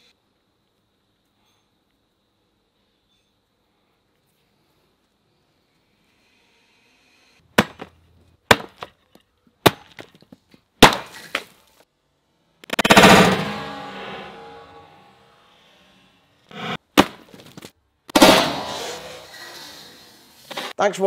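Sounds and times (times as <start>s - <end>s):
squash bursting apart: 10.8s - 11.6s, 12.6s - 14.8s, 16.5s - 20.8s.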